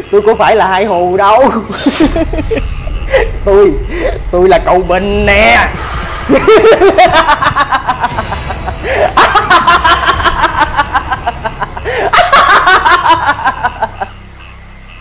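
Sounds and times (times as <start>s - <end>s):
man laughing loudly: 1.4s - 4.2s, 5.9s - 14.2s.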